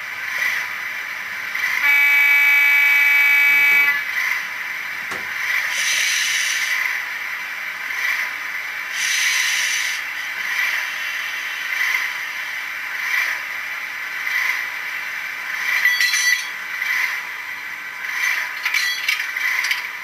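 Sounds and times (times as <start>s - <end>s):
buzzy horn note: 1.8s - 4.1s
air hiss: 5.7s - 6.8s, 8.9s - 10.1s.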